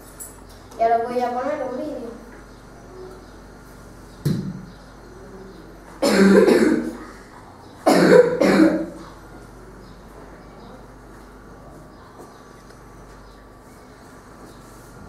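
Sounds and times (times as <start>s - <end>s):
person coughing: 6.0s - 7.2s, 7.9s - 9.0s.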